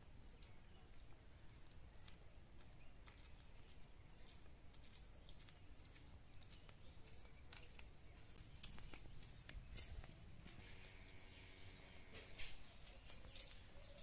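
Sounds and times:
footsteps on gravel and dry leaves: 2.0 - 11.5.

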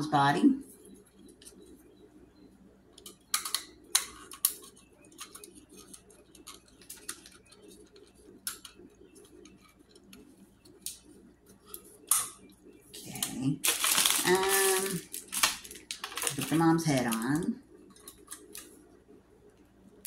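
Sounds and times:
plastic parts clicking: 15.3 - 16.5.

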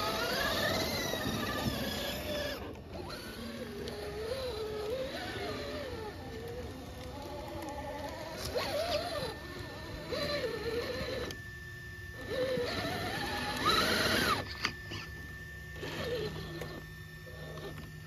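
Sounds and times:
toy car electric motor whining: 0.0 - 18.0.

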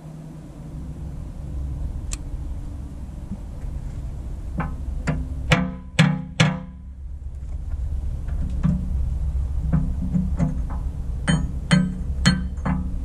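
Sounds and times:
hammer striking metal: 4.6 - 6.8, 11.3 - 12.9.

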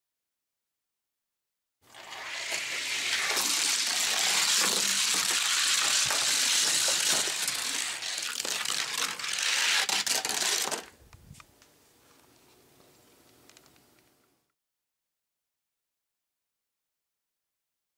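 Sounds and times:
toy car wheels rattling on track: 1.9 - 10.9.

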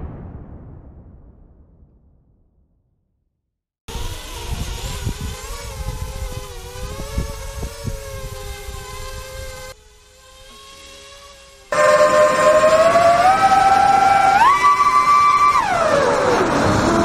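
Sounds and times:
wind rumble on microphone: 3.9 - 9.7
drone motors whining: 3.9 - 17.0.

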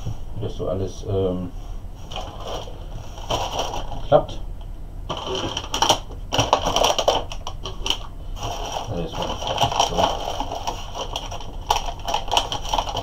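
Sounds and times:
foam and plastic rustling: 2.0 - 4.4, 5.1 - 13.0.

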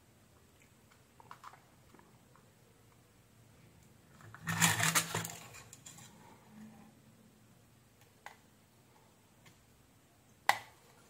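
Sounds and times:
circuit board clattering and rubbing: 4.2 - 6.2.

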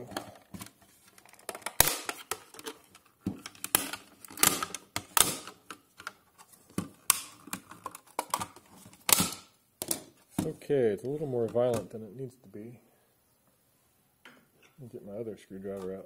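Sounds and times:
plastic case cracking and snapping: 0.1 - 6.2, 6.8 - 10.1.

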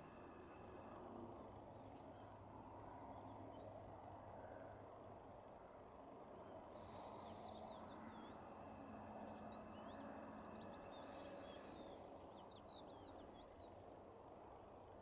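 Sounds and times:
faint low hum: 0.0 - 15.0
songbirds chirping: 6.2 - 14.1.

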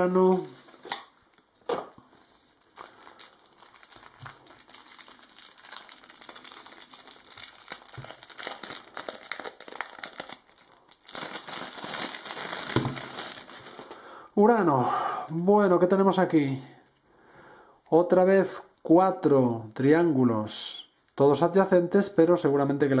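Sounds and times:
plastic wrapping crinkling: 0.0 - 14.3.

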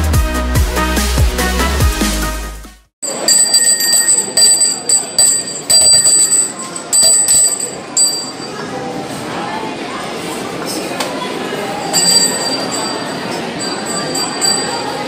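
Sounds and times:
background music: 0.0 - 2.9
bright metallic dings: 3.0 - 8.7, 11.8 - 15.0
restaurant crowd chatter: 3.0 - 15.0.

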